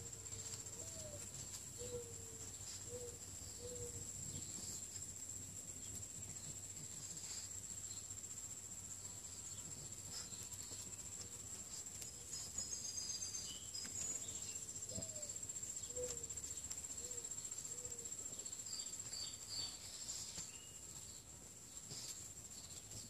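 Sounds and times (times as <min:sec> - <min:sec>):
high-pitched insect trill: 0:00.0 - 0:23.0
bird chirps: 0:12.2 - 0:20.8.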